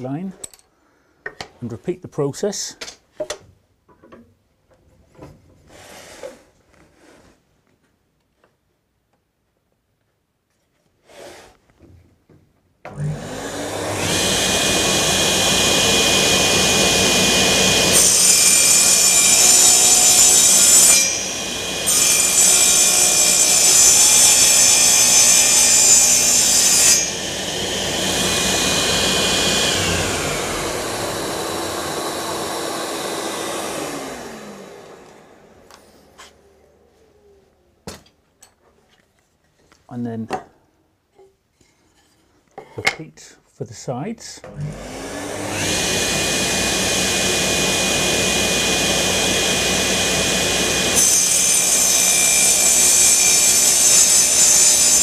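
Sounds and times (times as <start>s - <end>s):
table saw running: 12.9s - 36.0s, 44.5s - 55.0s
saw cutting wooden board: 12.9s - 36.4s, 44.5s - 55.0s.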